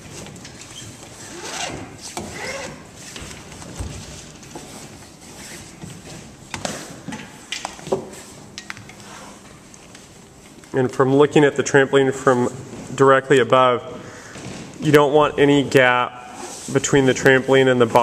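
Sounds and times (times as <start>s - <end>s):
rope rustling and scraping: 0.0s - 7.1s.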